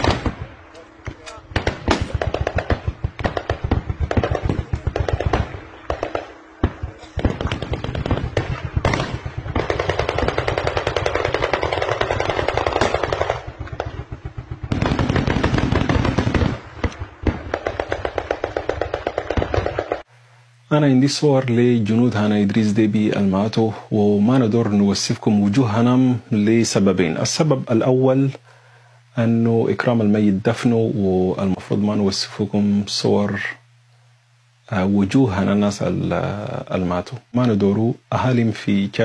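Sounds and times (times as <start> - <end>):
automatic gunfire: 0.0 - 0.5, 1.3 - 20.0.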